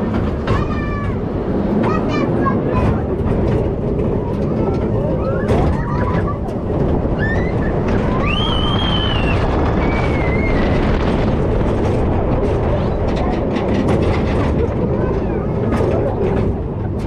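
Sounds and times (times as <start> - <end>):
roller coaster car rumbling: 0.0 - 17.0
wheels rattling on track: 0.0 - 17.0
high gliding squeals: 7.1 - 11.1.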